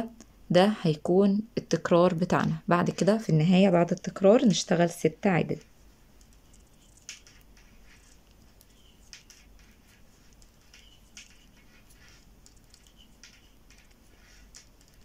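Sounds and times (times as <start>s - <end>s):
metal knitting needles clicking: 6.1s - 15.0s.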